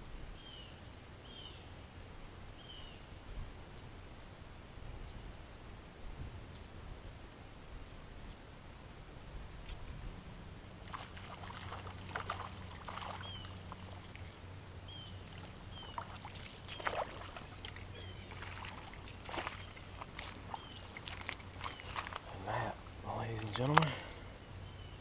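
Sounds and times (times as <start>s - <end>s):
low steady hum: 0.0s - 25.0s
fish splashing at surface: 10.8s - 14.2s, 15.8s - 22.2s.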